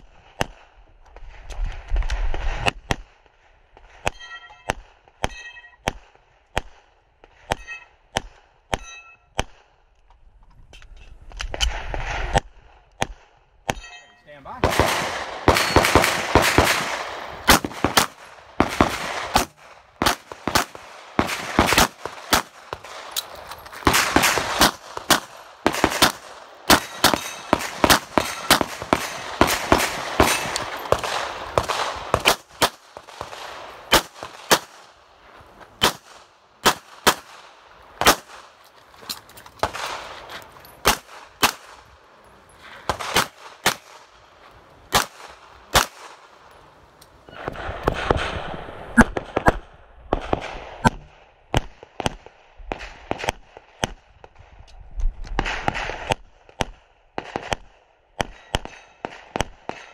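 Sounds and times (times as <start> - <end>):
pistol shots with echo: 14.4 - 34.9, 35.8 - 38.6, 40.8 - 41.9, 42.9 - 44.1, 44.9 - 46.3.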